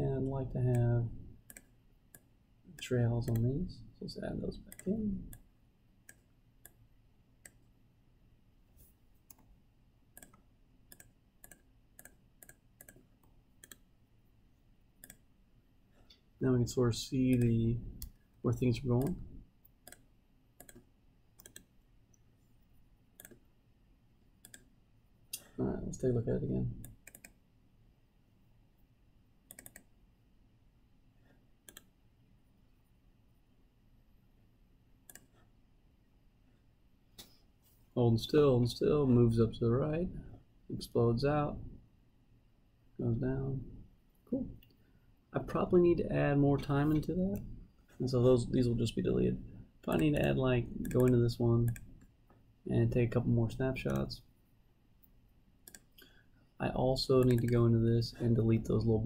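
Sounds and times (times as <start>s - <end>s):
faint computer mouse clicks: 19.8s - 22.2s, 24.4s - 24.7s, 29.5s - 29.9s, 31.7s - 31.9s, 55.6s - 56.1s
computer mouse button clicking: 21.4s - 21.7s, 29.5s - 29.9s.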